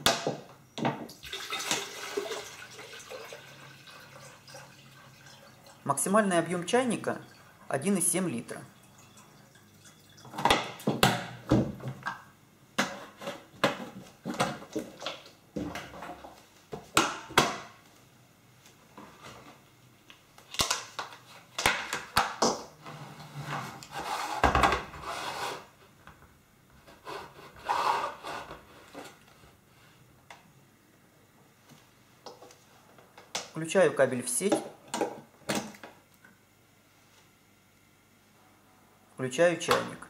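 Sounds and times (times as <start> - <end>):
short scraping sounds: 22.9 - 25.7.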